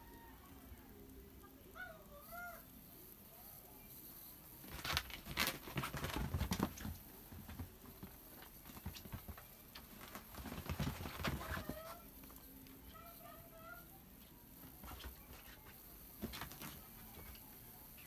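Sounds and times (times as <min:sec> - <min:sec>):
kittens' paws pattering: 0:04.1 - 0:18.0
fabric rustling: 0:04.6 - 0:12.0.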